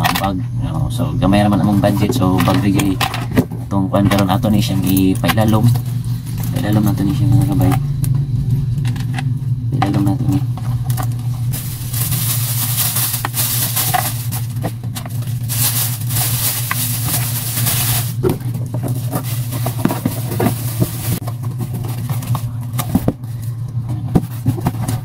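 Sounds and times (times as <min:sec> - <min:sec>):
steady low hum: 0:00.0 - 0:25.0
plastic bag crinkling: 0:10.8 - 0:23.3.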